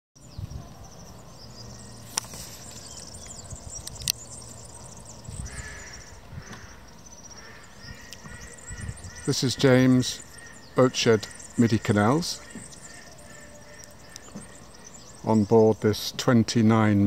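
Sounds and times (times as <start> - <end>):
faint bird calls: 0.2 - 16.1
sharp clicks: 3.2 - 4.3.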